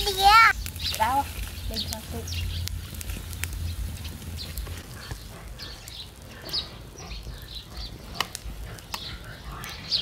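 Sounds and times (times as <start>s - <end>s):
cooking fire crackling: 0.0s - 10.0s
small birds chirping: 0.0s - 10.0s
low steady rumble: 0.5s - 5.5s.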